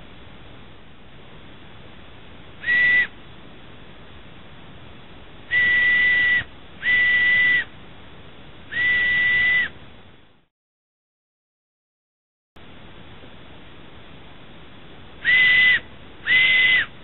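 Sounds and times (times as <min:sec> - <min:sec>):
bark whistle blasts: 0:02.6 - 0:03.1, 0:05.5 - 0:07.7, 0:08.7 - 0:09.7, 0:15.2 - 0:16.9.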